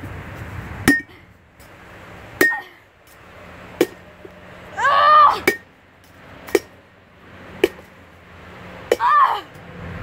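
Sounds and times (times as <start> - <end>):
person yelling: 4.8 - 5.5, 8.9 - 9.5.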